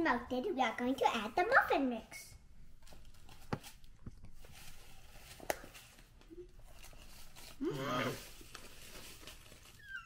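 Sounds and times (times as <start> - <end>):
paper bag crinkling: 4.3 - 10.0.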